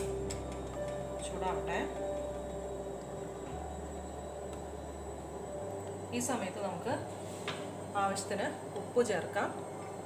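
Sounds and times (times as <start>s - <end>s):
low hum and faint hiss: 0.0s - 10.0s.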